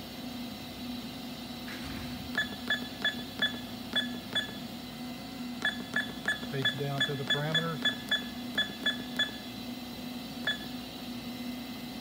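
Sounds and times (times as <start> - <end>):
keypad beeping: 2.3 - 4.6, 5.6 - 9.4, 10.5 - 10.7.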